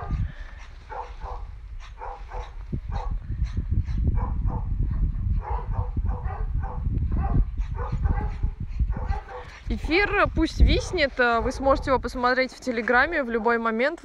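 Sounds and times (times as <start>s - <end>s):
hounds barking and yelping: 0.0s - 4.7s, 5.4s - 9.7s.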